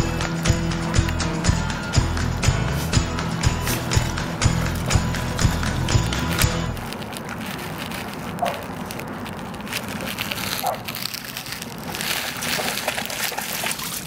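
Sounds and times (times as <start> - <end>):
dog splashing through shallow water: 11.8 - 14.0.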